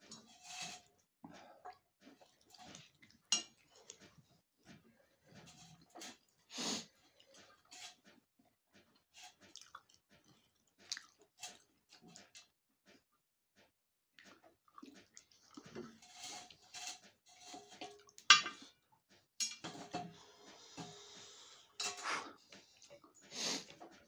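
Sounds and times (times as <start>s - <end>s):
person chewing food: 1.3s - 16.6s.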